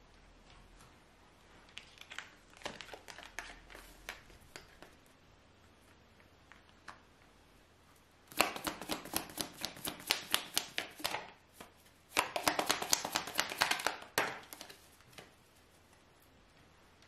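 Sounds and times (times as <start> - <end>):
cards being shuffled: 8.3 - 15.3.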